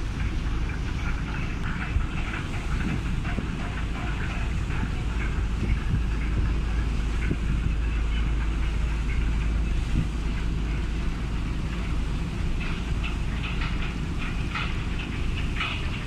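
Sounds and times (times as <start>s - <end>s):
boat engine rumble: 0.0s - 16.0s
water noise: 0.0s - 16.0s
wind: 0.0s - 16.0s.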